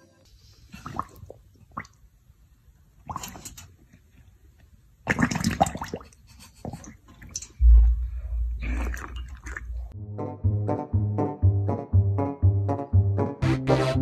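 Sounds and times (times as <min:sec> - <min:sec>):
dog lapping water from metal bowl: 0:03.1 - 0:03.7, 0:05.1 - 0:07.6, 0:08.6 - 0:10.0
low rumble: 0:07.6 - 0:10.0.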